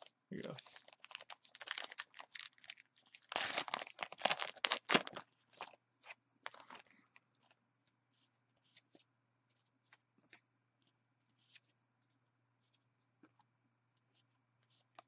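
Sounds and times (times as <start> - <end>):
card pack wrapper tearing: 0.4 - 5.8.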